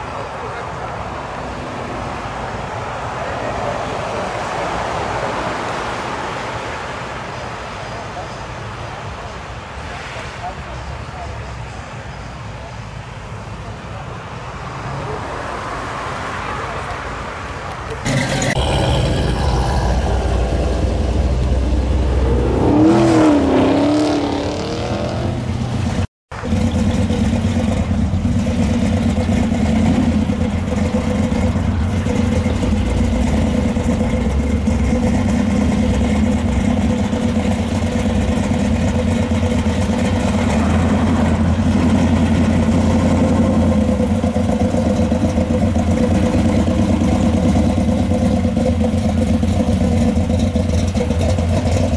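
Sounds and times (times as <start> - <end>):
truck engine rumbling: 16.7 - 51.9
car engine driving slowly past: 17.5 - 51.9.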